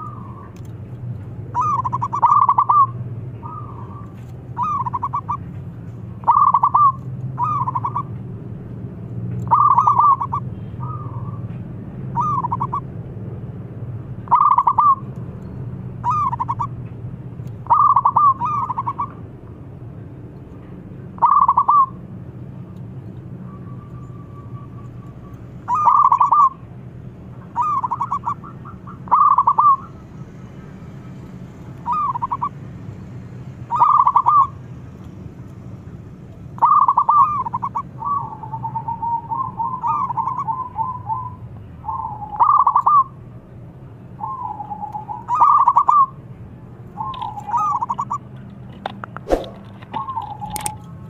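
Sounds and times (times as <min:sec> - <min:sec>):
dove cooing: 0:01.5 - 0:05.4, 0:06.2 - 0:08.1, 0:09.5 - 0:11.4, 0:14.3 - 0:15.0, 0:17.6 - 0:19.2, 0:21.2 - 0:22.0, 0:25.7 - 0:26.6, 0:27.6 - 0:29.9, 0:33.7 - 0:34.5, 0:36.6 - 0:41.3, 0:41.9 - 0:43.1, 0:44.2 - 0:46.1.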